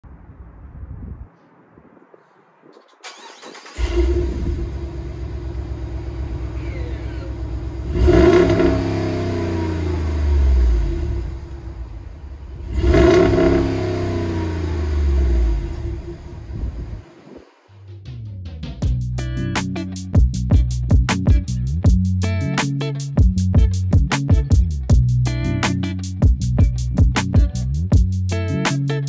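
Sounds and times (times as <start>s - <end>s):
car engine idling and revving: 3.1s - 17.8s.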